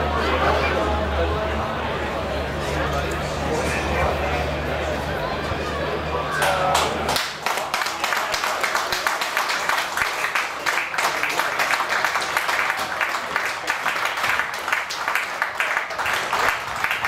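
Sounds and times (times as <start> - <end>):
voices: 0.0 - 17.0
crowd clapping: 6.3 - 17.0.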